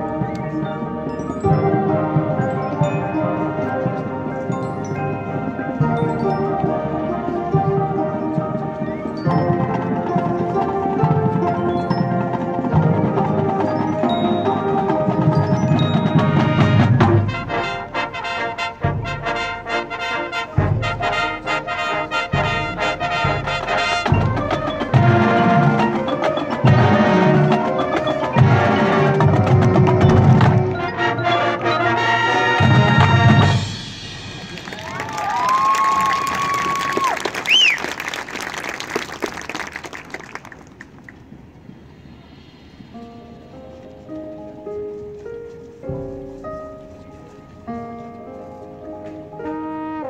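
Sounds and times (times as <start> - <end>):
marimbas and mallet percussion: 0.0 - 18.0, 20.6 - 35.9
brass chords: 0.0 - 35.4, 43.0 - 50.0.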